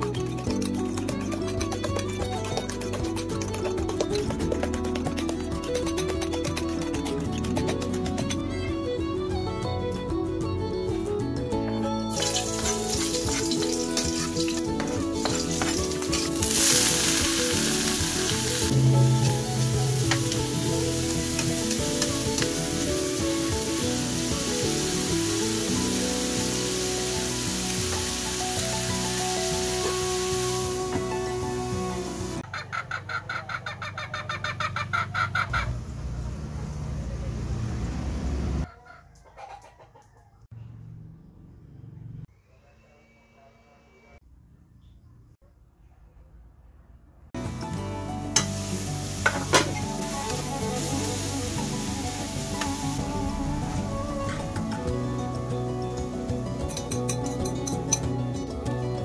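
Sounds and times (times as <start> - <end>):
background music: 0.0 - 32.5, 47.4 - 59.0
vegetables sizzling in oil: 12.1 - 32.4, 48.3 - 53.2
spatula stirring in wok: 12.2 - 17.2
chicken clucking: 32.4 - 35.7, 38.6 - 40.4.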